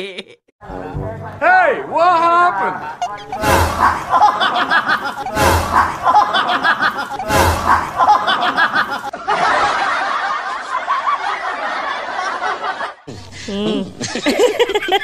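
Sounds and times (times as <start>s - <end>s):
snickering laugh: 0.0s - 0.4s, 3.8s - 15.0s
laughing: 2.8s - 15.0s.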